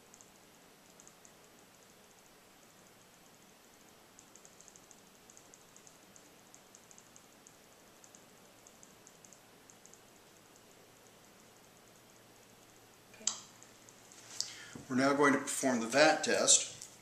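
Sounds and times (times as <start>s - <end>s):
faint high-pitched ticking: 0.0s - 14.6s
room hiss: 0.0s - 17.0s.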